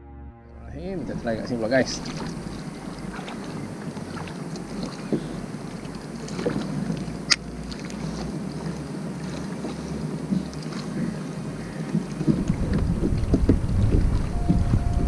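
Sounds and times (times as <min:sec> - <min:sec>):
water against kayak hull: 0:00.8 - 0:15.0
wind on microphone: 0:11.9 - 0:15.0.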